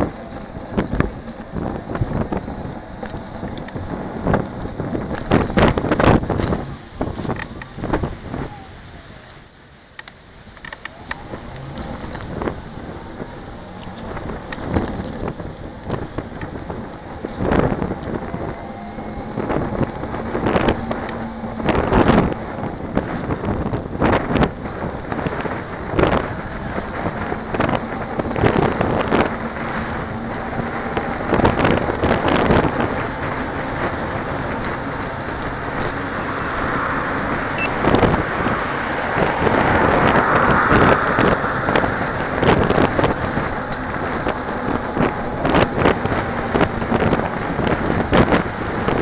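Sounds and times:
wind rushing over microphone: 0.0s - 9.2s, 10.9s - 49.0s
car passing: 33.4s - 44.2s.

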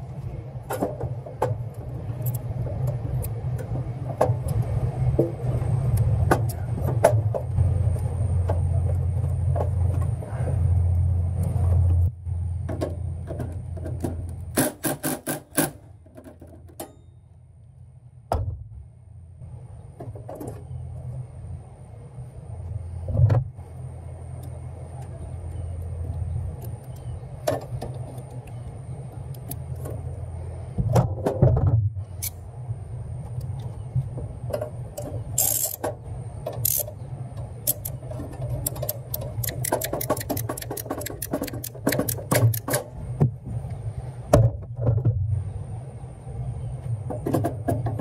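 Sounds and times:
steady low rumble: 0.0s - 14.6s, 15.8s - 48.0s.

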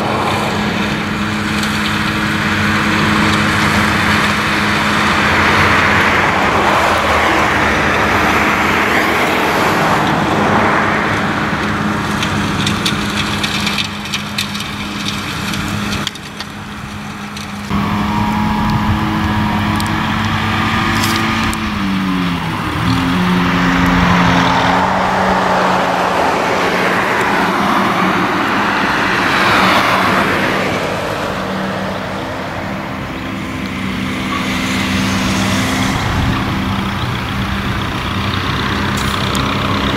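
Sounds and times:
tractor engine running: 0.0s - 39.9s
mower chopping grass hiss: 38.9s - 39.8s.

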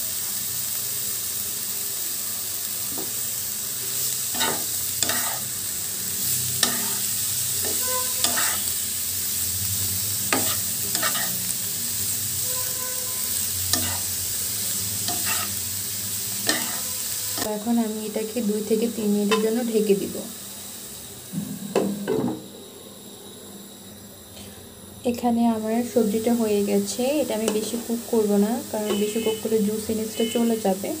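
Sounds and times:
cabbage sizzling in oil: 0.0s - 21.3s, 25.4s - 31.0s
spatula scraping and knocking pan: 4.4s - 5.4s, 6.6s - 7.0s, 7.6s - 8.7s, 10.3s - 11.4s, 13.8s - 14.0s, 15.1s - 15.5s, 16.4s - 17.5s.

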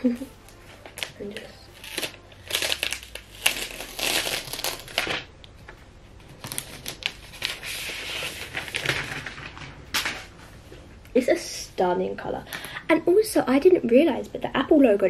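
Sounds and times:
plastic sheet crinkling being peeled: 0.0s - 5.8s, 6.4s - 10.3s.

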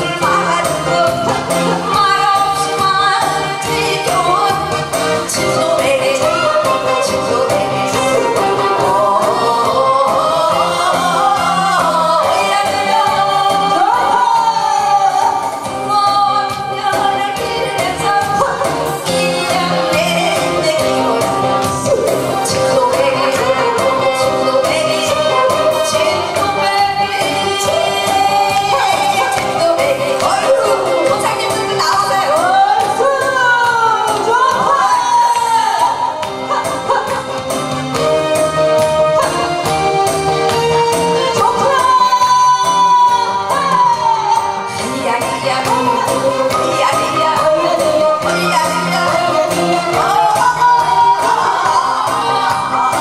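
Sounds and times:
person singing into a microphone: 0.0s - 37.3s, 41.0s - 53.0s
loud backing track with beat: 0.0s - 53.0s.

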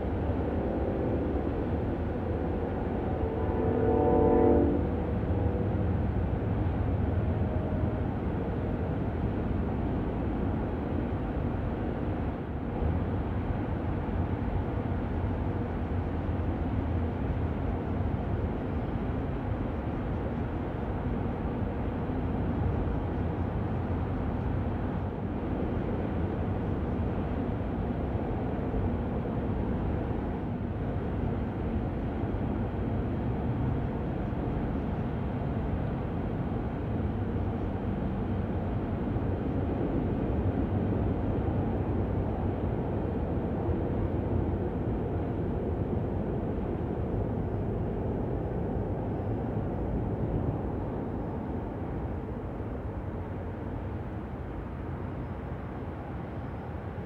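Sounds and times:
freight train rumbling: 0.0s - 57.0s
train horn: 0.4s - 1.7s, 2.3s - 5.8s.

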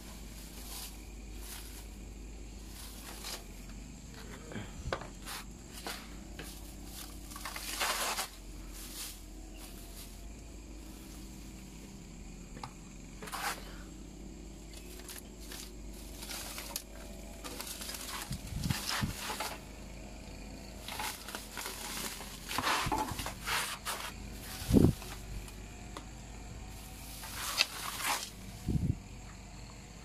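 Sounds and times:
plastic netting rustling: 0.0s - 3.7s, 5.2s - 11.7s, 14.8s - 19.7s, 20.7s - 25.5s, 26.7s - 28.7s.

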